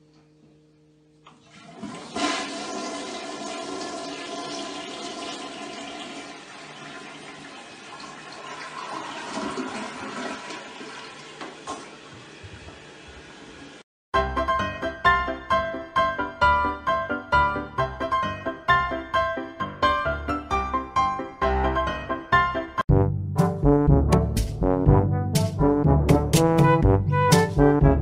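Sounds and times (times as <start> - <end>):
toilet flushing: 1.3 - 13.8.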